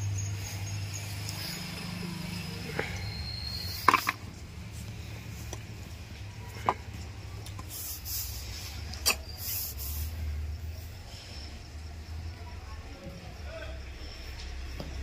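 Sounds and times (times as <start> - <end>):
low steady hum: 0.0 - 15.0
short hisses: 7.7 - 10.3.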